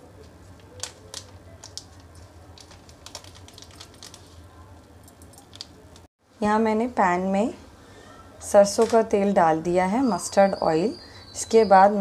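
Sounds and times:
plastic sachet crinkling: 0.5s - 6.0s.

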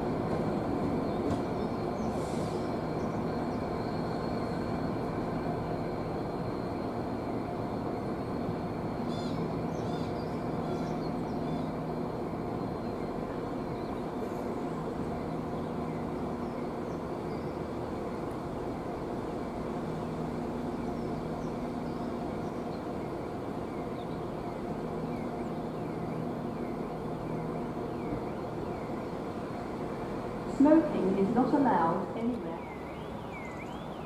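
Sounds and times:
diesel locomotive engine droning: 0.0s - 34.0s.

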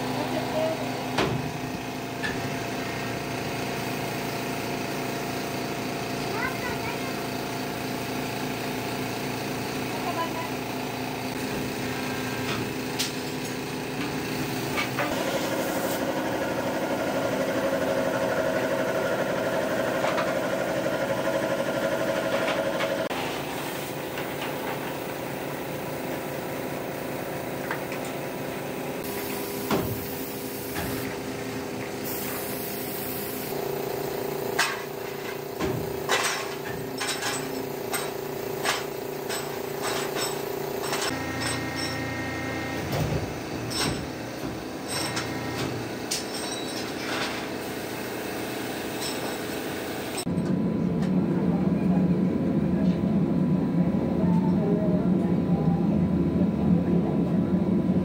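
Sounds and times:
workshop machinery hum: 0.0s - 58.0s
air spray gun hissing: 15.1s - 16.1s, 29.0s - 31.3s, 31.9s - 34.2s
metal castings clinking together: 46.2s - 47.0s.

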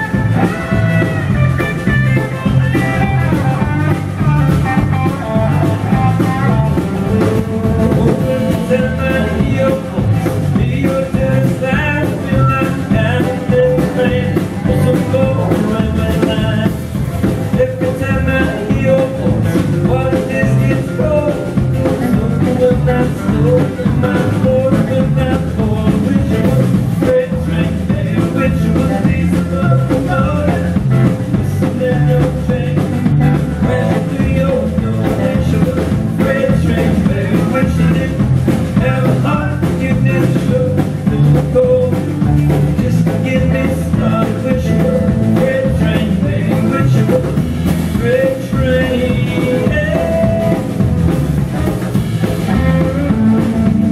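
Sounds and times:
live country rock band: 0.0s - 53.9s.

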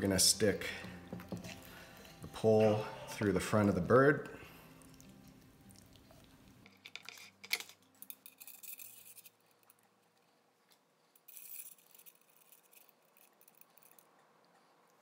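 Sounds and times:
metal spit forks scraping and clicking: 6.6s - 9.8s, 11.2s - 14.2s.

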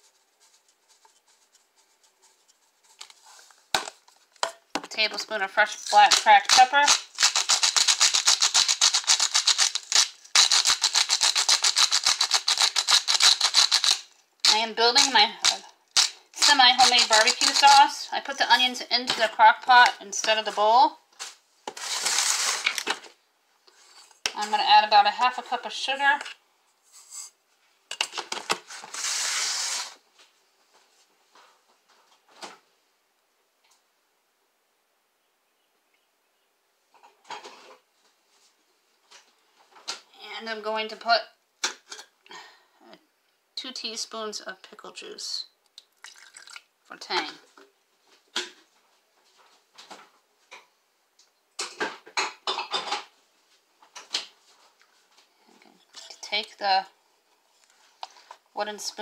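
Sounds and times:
sugar pouring into glass bowl: 46.0s - 46.6s.

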